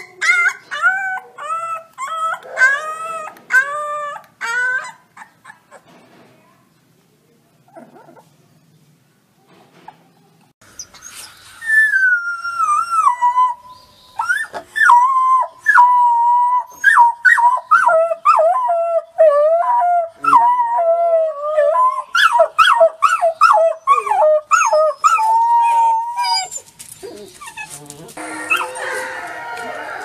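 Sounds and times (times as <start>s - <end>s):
wolf pups howling: 11.8s - 30.0s.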